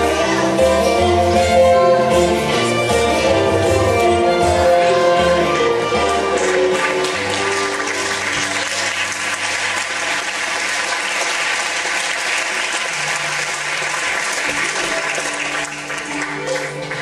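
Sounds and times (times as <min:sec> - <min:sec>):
audience applauding: 0:06.1 - 0:17.0.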